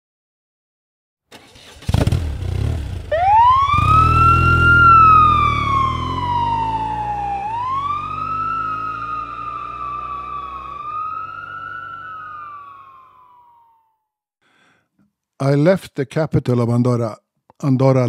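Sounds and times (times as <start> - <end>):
siren wailing: 3.1 - 13.9.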